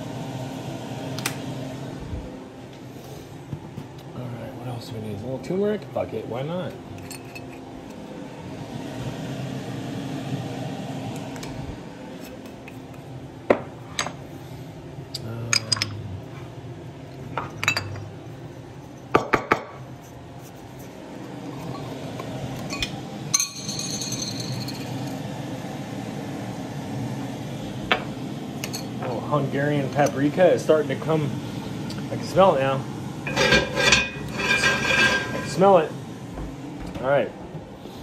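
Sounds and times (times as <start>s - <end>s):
low background hum: 0.0s - 38.0s
glass jars clinking: 17.4s - 18.1s, 22.7s - 25.0s.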